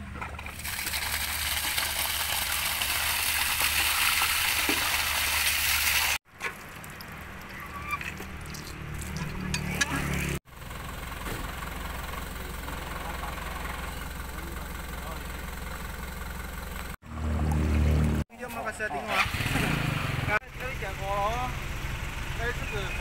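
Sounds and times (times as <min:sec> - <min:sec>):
water rushing from hydrant: 0:00.4 - 0:09.5.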